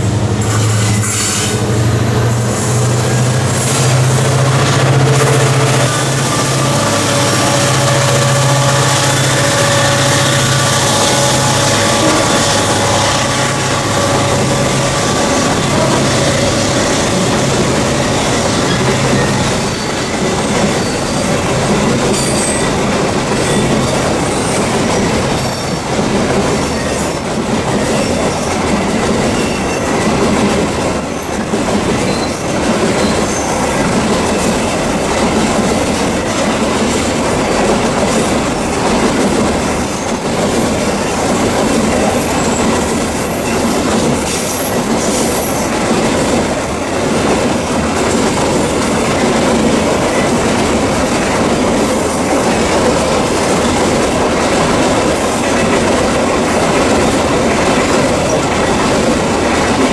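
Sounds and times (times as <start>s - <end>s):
diesel locomotive engines droning: 0.0s - 59.9s
train wheels clacking on rail joints: 0.0s - 59.9s
wheel squeals: 3.6s - 22.8s, 26.6s - 30.2s, 31.1s - 35.2s.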